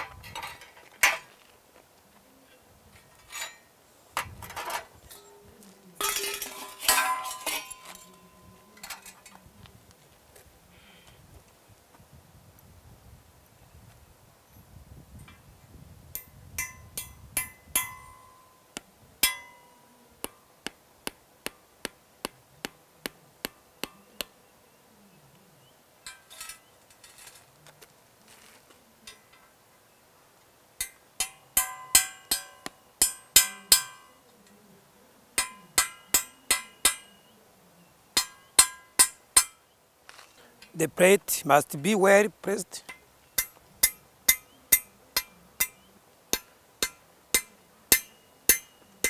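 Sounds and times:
hammer striking steel nails: 0:30.8 - 0:34.1, 0:35.4 - 0:37.2, 0:38.2 - 0:39.6, 0:42.9 - 0:48.7.

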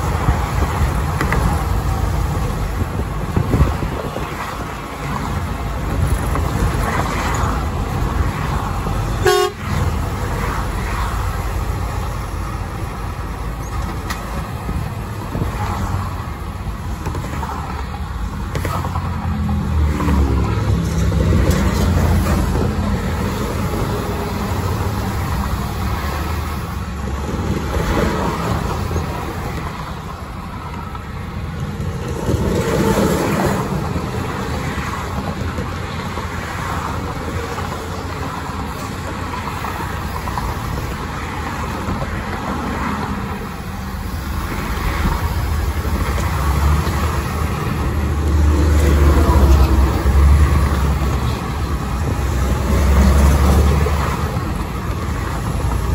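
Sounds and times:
engine and road rumble: 0:00.0 - 0:55.9
traffic passing: 0:00.0 - 0:55.9
tyres on concrete pavement: 0:00.0 - 0:55.9
truck passing: 0:31.4 - 0:55.9.

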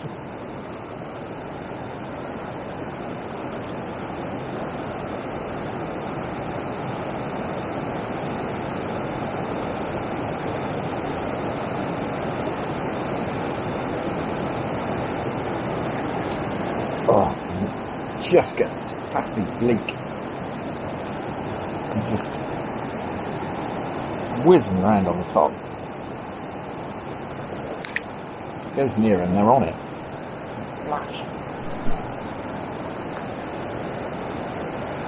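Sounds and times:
water rushing over a weir: 0:27.5 - 0:28.6, 0:29.2 - 0:35.0.

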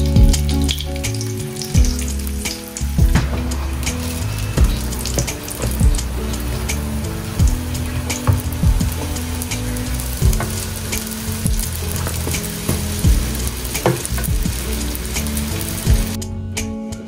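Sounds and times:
crackling sizzling hiss: 0:00.0 - 0:16.2
background music with bass: 0:00.0 - 0:17.0.

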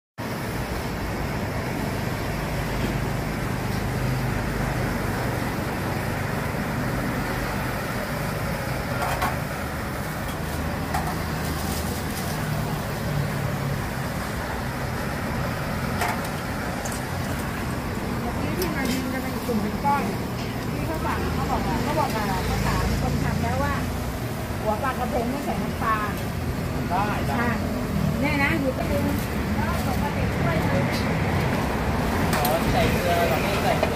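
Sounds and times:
street background rumble: 0:00.2 - 0:33.9.

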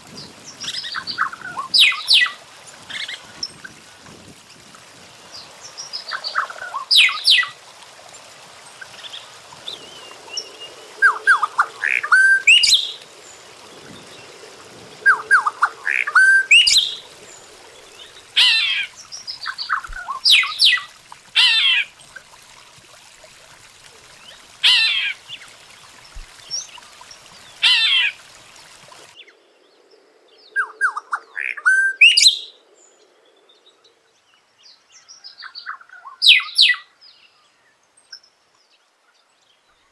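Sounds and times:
bird singing: 0:09.6 - 0:14.4, 0:15.0 - 0:20.8.

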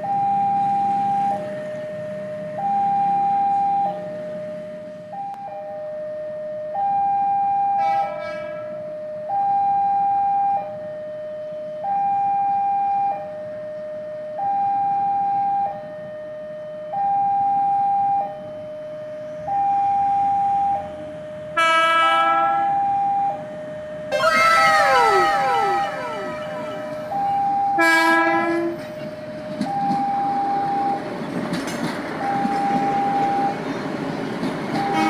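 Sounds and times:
train horn blowing: 0:07.8 - 0:08.8, 0:21.6 - 0:22.8, 0:24.1 - 0:29.0
level-crossing two-note alarm: 0:19.5 - 0:28.8.

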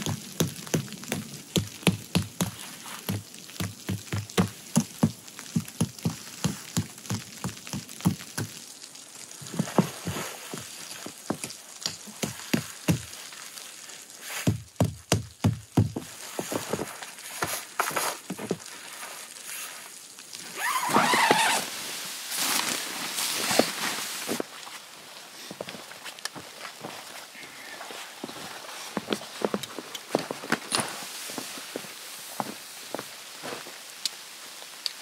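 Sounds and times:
footsteps in snow: 0:16.0 - 0:19.8, 0:20.5 - 0:33.8.

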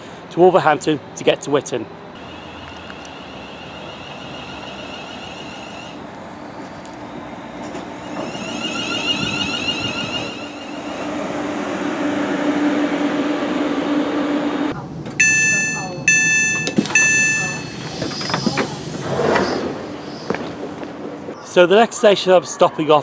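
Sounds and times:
electric train pulling in: 0:02.2 - 0:16.3
high whine: 0:08.0 - 0:18.4.

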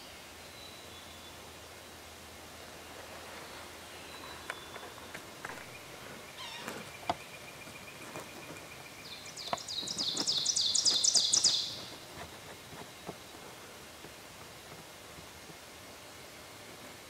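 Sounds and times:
songbird singing high notes: 0:09.0 - 0:11.9.

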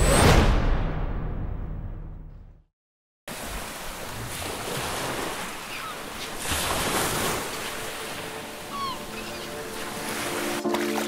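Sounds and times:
waves lapping: 0:03.3 - 0:11.0.

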